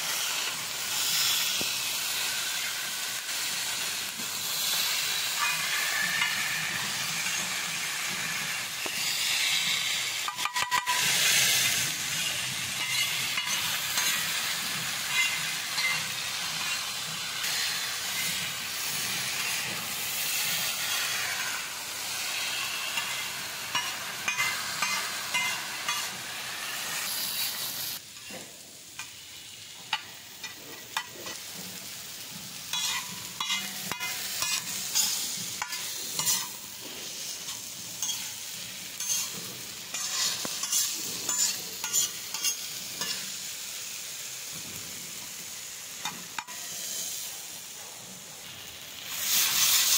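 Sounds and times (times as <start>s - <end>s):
food sizzling in a pan: 0.0s - 49.9s
spatula scraping pan: 4.6s - 28.4s, 32.6s - 43.3s.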